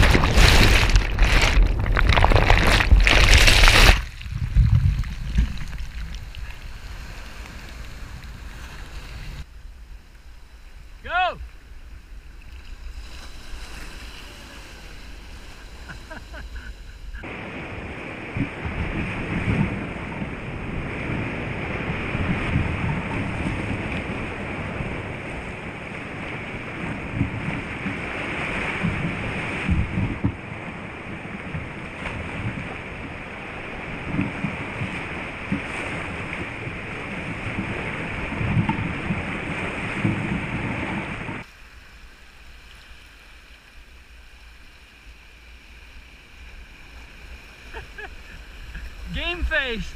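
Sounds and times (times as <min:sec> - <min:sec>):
sea surf washing around rocks: 0:00.0 - 0:09.5, 0:10.6 - 0:49.9
wind buffeting microphone: 0:00.0 - 0:09.5, 0:16.8 - 0:41.5
kayak paddling: 0:00.0 - 0:49.9.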